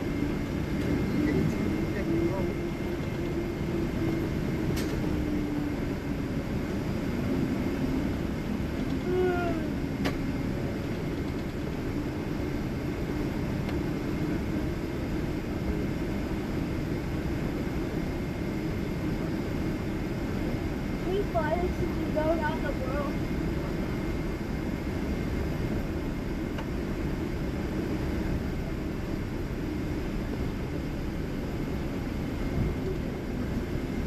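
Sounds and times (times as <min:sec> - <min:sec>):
rumbling airplane cabin noise: 0:00.0 - 0:34.0.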